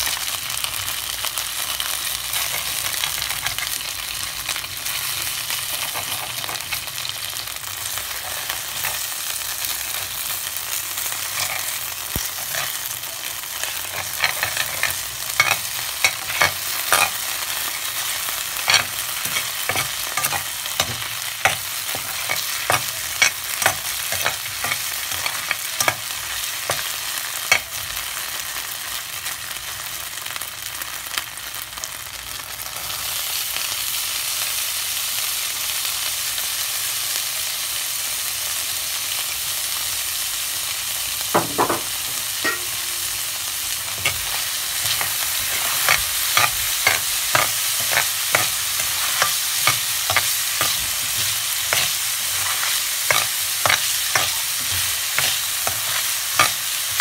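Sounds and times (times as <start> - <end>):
sausage sizzling in a pan: 0.0 - 57.0
metal spatula scraping a pan: 11.0 - 12.9, 13.6 - 26.9, 43.9 - 57.0.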